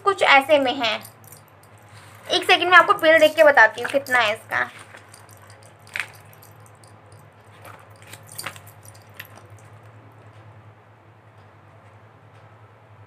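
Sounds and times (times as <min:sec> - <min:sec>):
paper bill rustling: 0:01.9 - 0:06.4.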